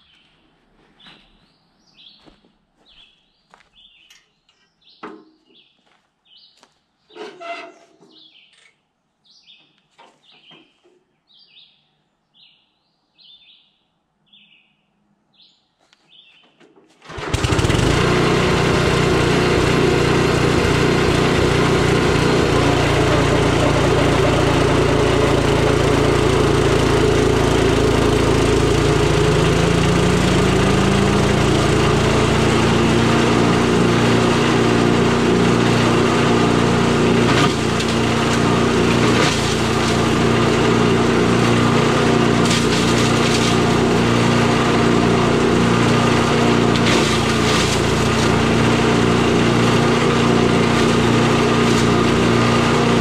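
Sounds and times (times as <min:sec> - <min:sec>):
small engine running: 0:17.1 - 0:53.0.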